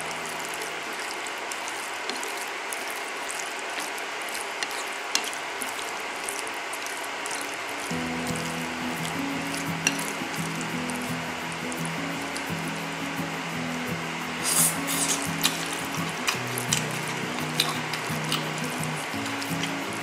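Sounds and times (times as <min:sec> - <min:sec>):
background music low notes: 0:00.0 - 0:02.3, 0:07.8 - 0:20.0
vegetables rustling in bowl: 0:00.0 - 0:12.6, 0:14.4 - 0:20.0.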